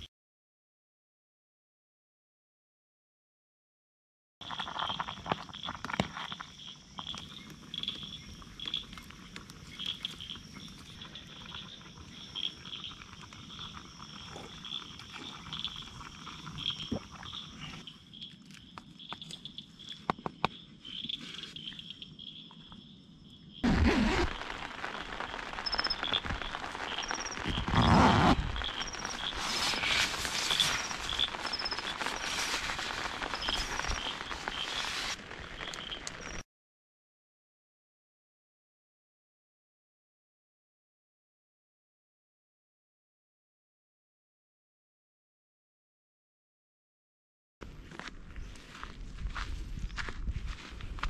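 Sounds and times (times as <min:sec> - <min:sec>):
campfire crackling and popping: 0:04.4 - 0:21.2, 0:23.6 - 0:36.4
frogs and insects trilling: 0:04.4 - 0:36.4
tent fabric rustling: 0:23.6 - 0:36.4.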